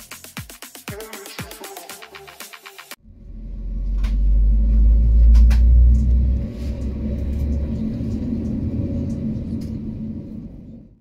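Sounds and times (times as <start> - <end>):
airplane cabin rumble: 3.0 - 11.0.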